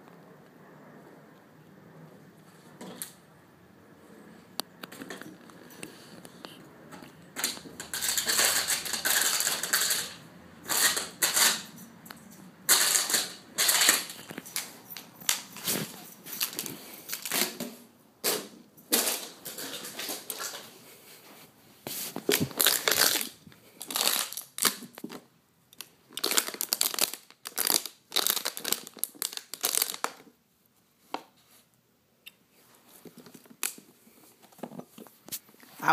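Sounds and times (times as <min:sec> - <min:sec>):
plastic bottle crackling: 0:07.4 - 0:11.6, 0:12.7 - 0:20.7, 0:22.2 - 0:30.3.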